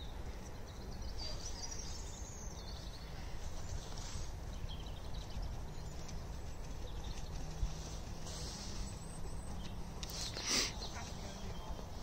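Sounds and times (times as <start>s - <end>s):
small birds chirping: 0.0s - 12.0s
horse hoofbeats on soft ground: 5.2s - 9.8s.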